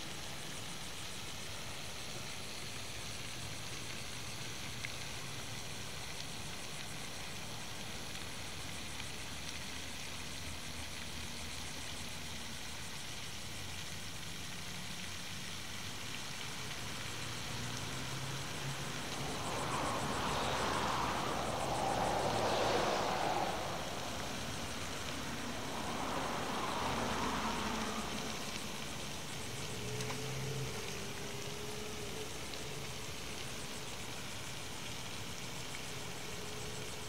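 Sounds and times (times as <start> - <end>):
outdoor background hiss: 0.0 - 37.0
loud rushing noise: 18.6 - 28.4.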